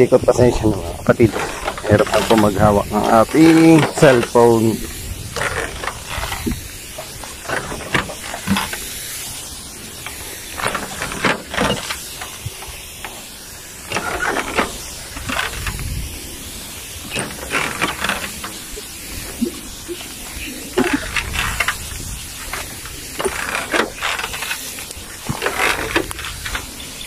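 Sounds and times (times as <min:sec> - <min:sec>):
sprayer wand hissing: 0:00.0 - 0:27.0
short rustles and knocks: 0:00.4 - 0:13.3.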